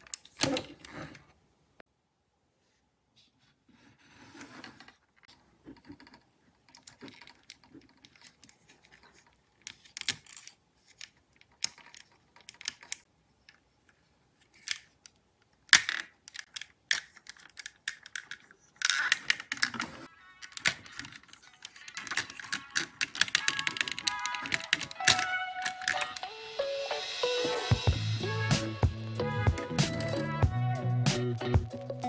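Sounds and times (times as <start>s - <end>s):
plastic bricks clicking: 5.6s - 13.6s, 14.5s - 26.2s.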